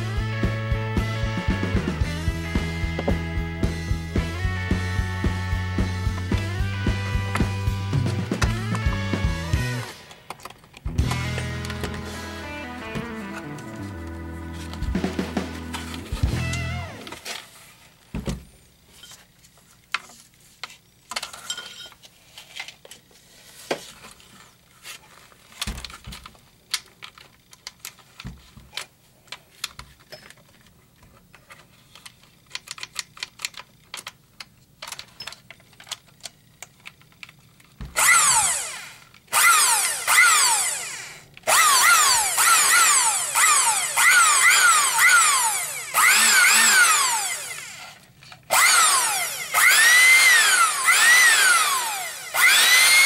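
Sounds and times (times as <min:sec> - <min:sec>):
small electric motor running: 0:38.0 - 0:53.0.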